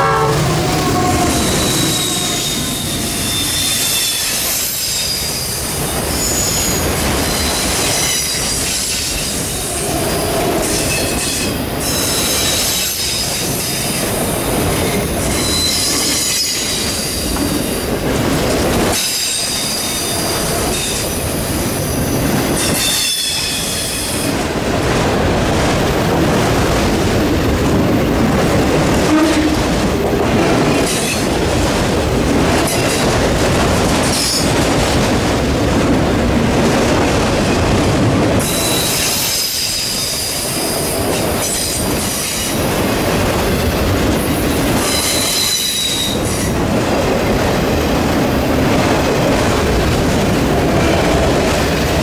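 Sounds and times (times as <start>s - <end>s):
train wheels squealing: 0.0s - 10.0s, 10.6s - 14.0s, 14.6s - 17.9s, 18.9s - 24.3s, 38.4s - 42.6s, 44.8s - 46.5s
freight train rumble and clatter: 0.0s - 52.0s.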